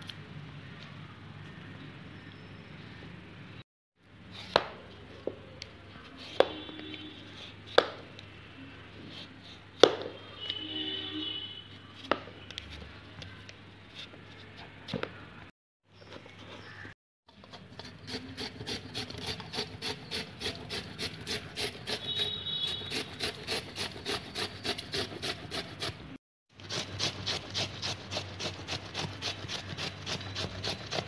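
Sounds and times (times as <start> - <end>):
vegetable peeler scraping beetroot: 9.0 - 10.6, 17.4 - 31.0.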